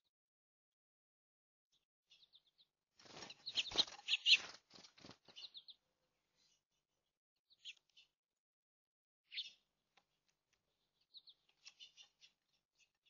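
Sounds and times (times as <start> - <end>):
finches fluttering wings: 3.0 - 5.5.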